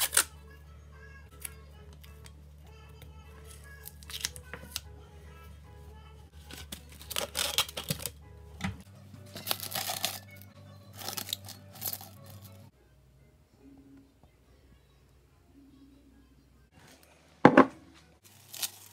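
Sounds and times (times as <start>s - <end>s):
quiet background music: 0.0s - 18.9s
cling wrap crinkling: 6.4s - 8.1s, 9.3s - 12.5s, 18.2s - 18.9s.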